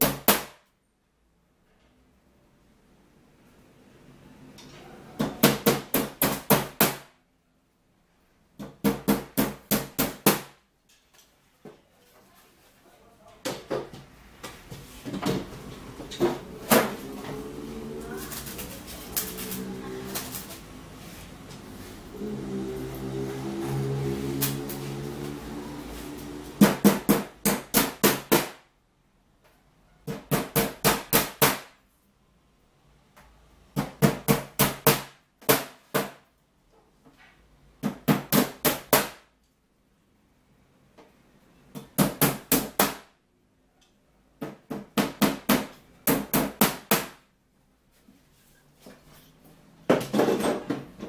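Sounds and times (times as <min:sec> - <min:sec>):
hammer nailing wood: 0:00.0 - 0:00.6, 0:05.2 - 0:07.1, 0:08.6 - 0:10.6, 0:26.6 - 0:28.6, 0:30.0 - 0:31.8, 0:33.8 - 0:36.2, 0:37.8 - 0:39.2, 0:41.7 - 0:43.1, 0:44.4 - 0:47.2.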